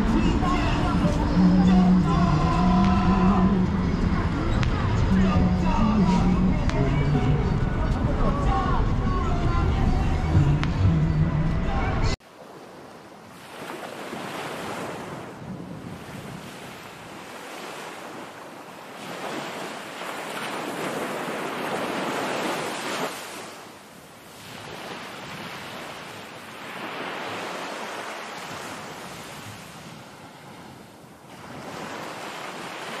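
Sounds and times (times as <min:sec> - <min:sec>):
small waves washing onto shore: 0:12.2 - 0:33.0.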